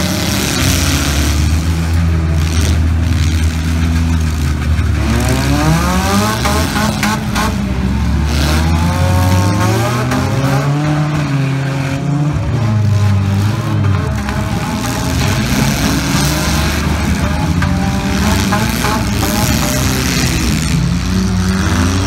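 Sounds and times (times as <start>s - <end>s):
car engines revving hard: 0.0s - 22.0s.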